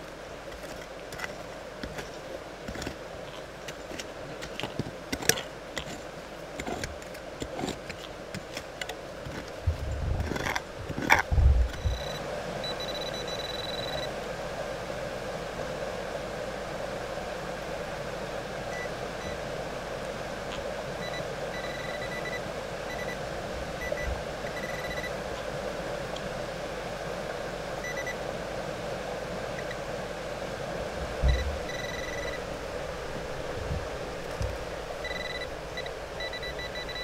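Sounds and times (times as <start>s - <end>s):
creek rushing: 0.0s - 37.0s
metal detector beeps: 11.7s - 14.1s, 21.0s - 23.2s, 23.8s - 25.1s, 31.3s - 32.4s, 35.0s - 37.0s.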